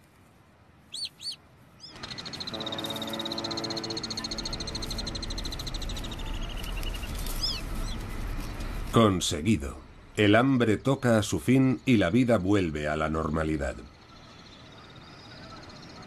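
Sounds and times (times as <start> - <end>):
rapid bird trill: 0.9 - 8.9
swifts chirping: 0.9 - 16.0.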